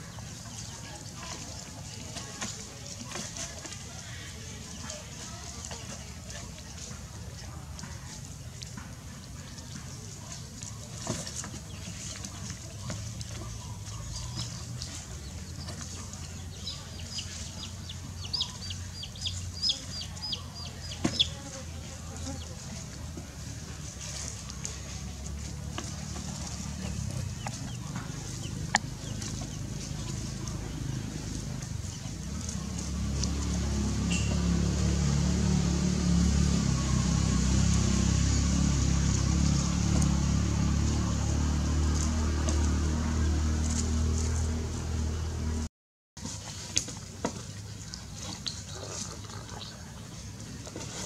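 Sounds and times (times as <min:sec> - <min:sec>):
chick peeping: 0:11.4 - 0:21.5, 0:24.0 - 0:33.0
engine idling: 0:21.8 - 0:45.7.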